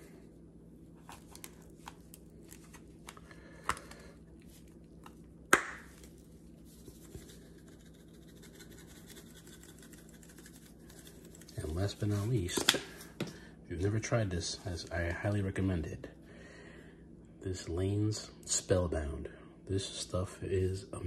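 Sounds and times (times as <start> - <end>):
powder rattling out of shaker: 6.7 - 12.4.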